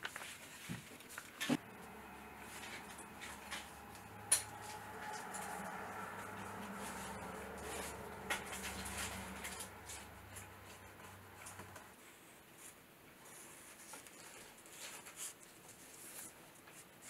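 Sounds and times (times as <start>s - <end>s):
paper rustling: 0.0s - 11.9s, 12.6s - 17.0s
low steady hum: 1.4s - 12.0s.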